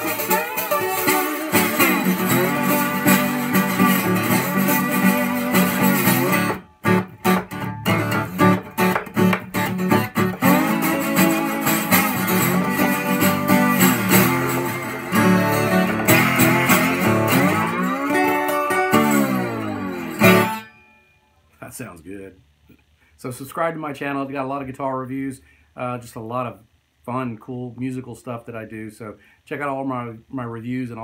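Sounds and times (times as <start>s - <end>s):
slide guitar strummed chords: 0.0s - 21.0s.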